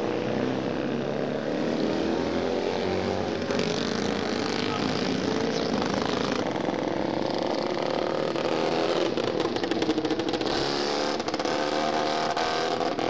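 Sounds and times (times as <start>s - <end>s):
motorcycles passing at speed: 0.0s - 13.0s.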